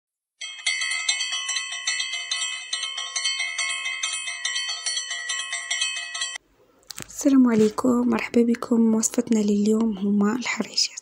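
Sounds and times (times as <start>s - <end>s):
bell-like chiming jingle: 0.4s - 6.4s.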